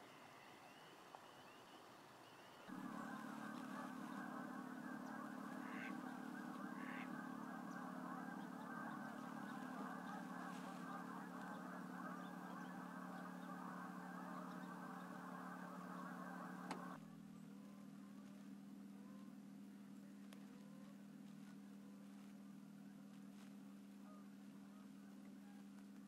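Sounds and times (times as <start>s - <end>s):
low steady hum: 0.0s - 26.0s
geese honking: 2.6s - 17.0s.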